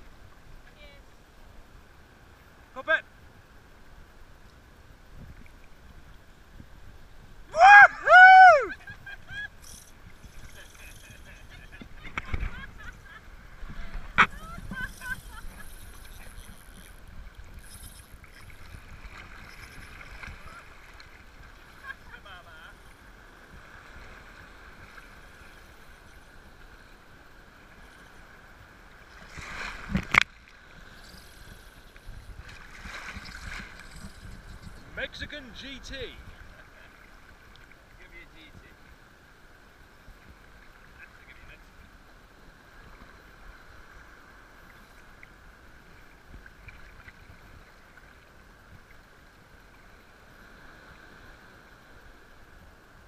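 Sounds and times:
wind: 0.0s - 53.0s
shallow surf sloshing: 1.8s - 53.0s
faint ticks: 14.2s - 20.4s, 29.2s - 35.0s, 37.3s - 38.0s, 44.6s - 45.4s.

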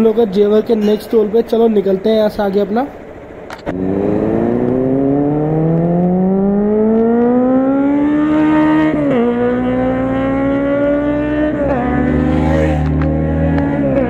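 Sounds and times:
motorcycle engine accelerating: 3.5s - 14.0s.

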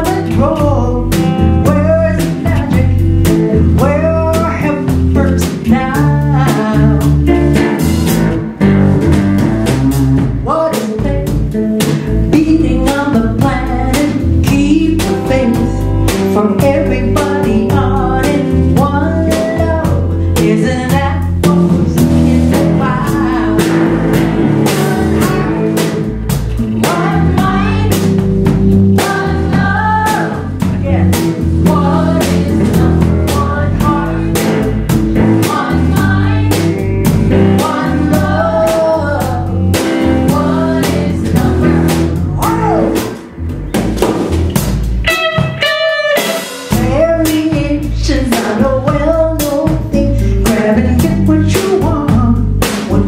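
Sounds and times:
women singing: 0.0s - 3.1s, 3.8s - 7.3s, 12.3s - 26.0s, 26.8s - 28.1s, 28.9s - 42.2s, 46.8s - 53.0s
drum kit: 0.0s - 53.0s
electric bass: 0.0s - 53.0s
electric guitar: 0.0s - 53.0s.

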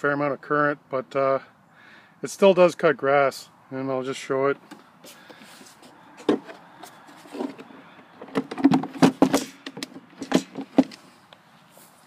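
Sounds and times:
knocks and clatter of plastic: 6.2s - 11.0s.

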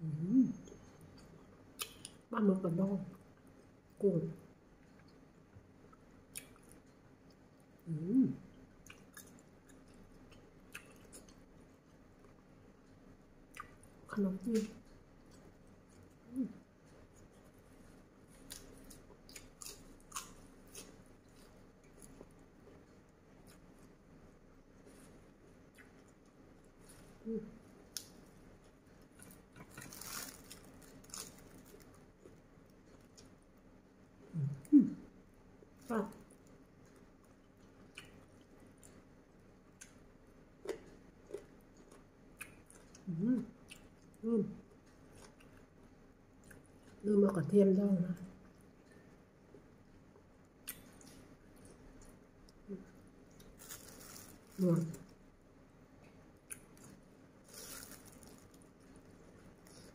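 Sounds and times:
person humming mm: 0.0s - 0.6s, 7.9s - 8.4s
person chewing: 4.8s - 7.8s, 8.5s - 14.0s, 14.8s - 33.7s, 35.6s - 47.0s, 48.4s - 55.3s, 55.9s - 59.9s
lettuce leaves tearing: 29.7s - 31.8s, 53.5s - 54.9s, 57.5s - 58.5s.

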